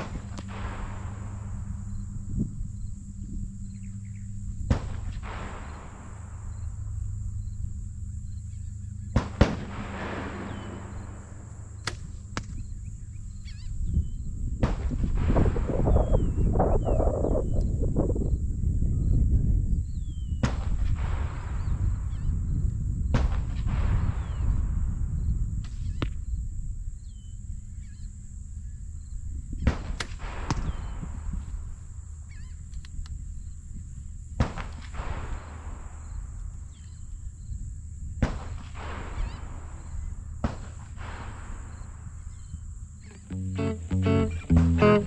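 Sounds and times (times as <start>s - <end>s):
bow shot cracks: 0.0s - 4.1s, 4.7s - 7.6s, 8.6s - 12.9s, 34.4s - 36.1s, 38.2s - 42.5s
wind rumbling on microphone: 0.0s - 45.0s
arrow hiss: 4.7s - 7.2s, 38.2s - 42.1s
gunshot cracks with echo: 9.2s - 12.6s
small birds chirping: 11.7s - 14.4s, 42.4s - 45.0s.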